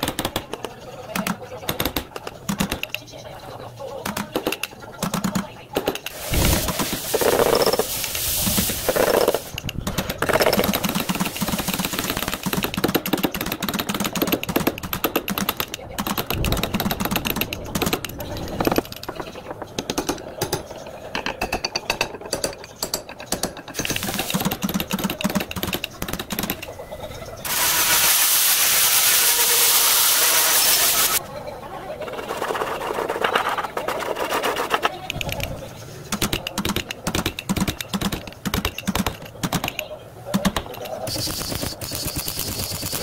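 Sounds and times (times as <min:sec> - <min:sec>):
metal clicks and knocks: 0:12.5 - 0:26.7, 0:35.0 - 0:41.0.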